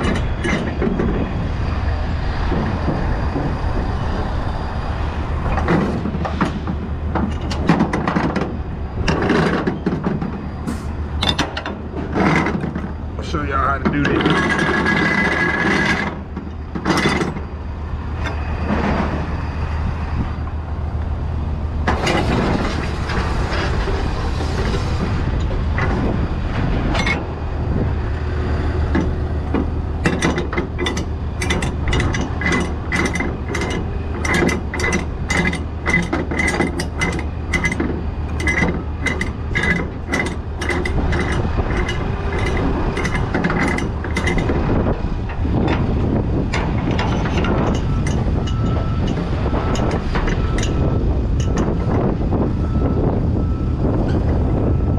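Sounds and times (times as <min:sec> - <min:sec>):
low engine hum: 0:00.0 - 0:54.9
winch pawl clicking: 0:28.9 - 0:45.9.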